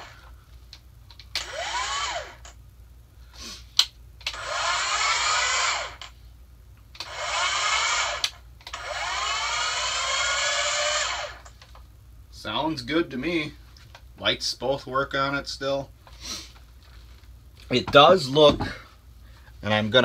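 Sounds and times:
electric motor whine: 0.0 - 0.2, 1.3 - 2.6, 4.3 - 6.1, 7.0 - 11.5.

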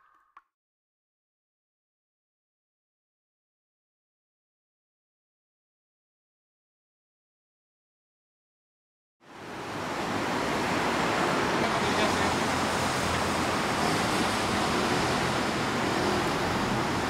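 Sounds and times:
wind: 9.2 - 17.0
traffic: 9.3 - 17.0.

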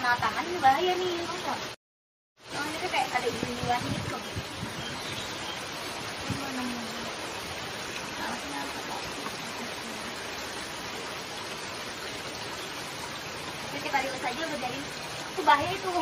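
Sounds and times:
flowing water rushing: 0.0 - 1.8, 2.4 - 16.0.

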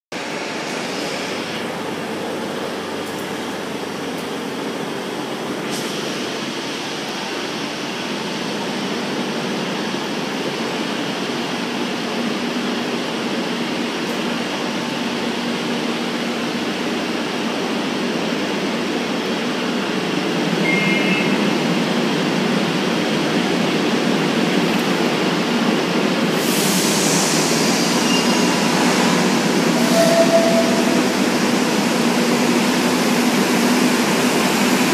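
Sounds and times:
train humming at platform: 0.1 - 34.9
brief high beep: 20.6 - 21.4
loud hiss of air: 26.3 - 32.8.

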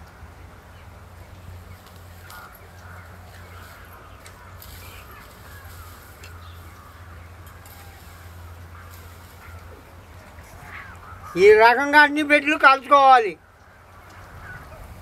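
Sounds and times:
steady low hum: 0.0 - 11.4
birds calling: 0.0 - 15.0.

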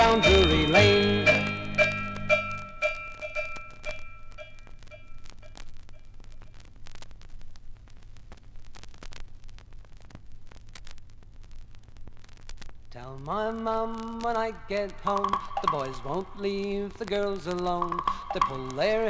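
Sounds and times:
bell-like tone: 0.0 - 5.2, 15.3 - 16.1, 17.8 - 18.9
vinyl crackle and clicks: 0.0 - 19.0.

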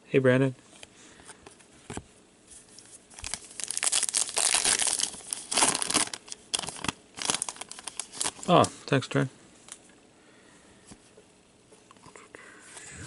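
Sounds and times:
trading cards rustling and crinkling: 0.8 - 8.8.

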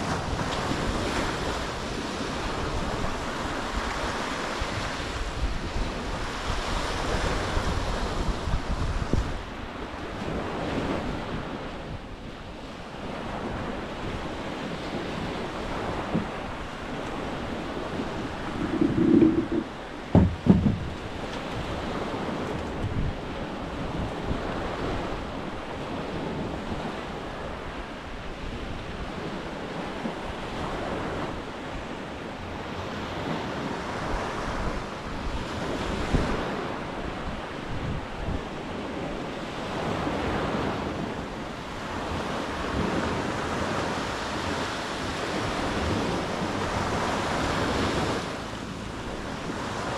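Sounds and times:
small waves washing onto sand: 0.0 - 49.9
wind buffeting microphone: 0.0 - 49.9
brief knocks: 18.5 - 21.0.

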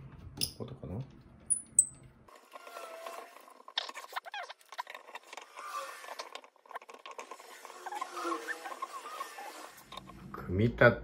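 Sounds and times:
plastic and metal parts scraping: 2.3 - 10.2.

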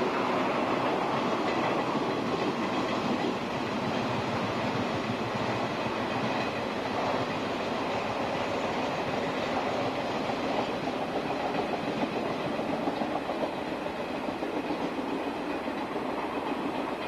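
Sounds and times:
clickety-clack over rail joints: 0.0 - 17.0
train wheels rumbling on rails: 0.0 - 17.0.

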